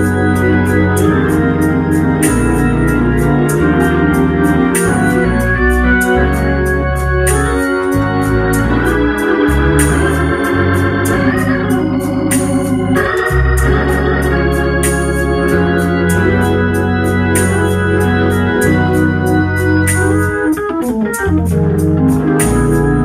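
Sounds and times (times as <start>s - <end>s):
deep bass line: 0.0s - 23.0s
organ chords: 0.0s - 23.0s.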